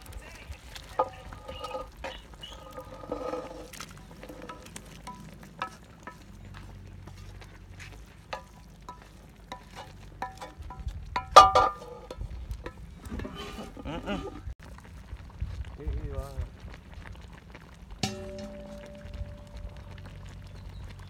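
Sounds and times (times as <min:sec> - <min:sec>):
wooden spatula scraping metal pan: 0:00.0 - 0:14.2, 0:18.0 - 0:20.3
pan clanging: 0:00.8 - 0:07.2, 0:07.8 - 0:13.9, 0:18.0 - 0:20.4.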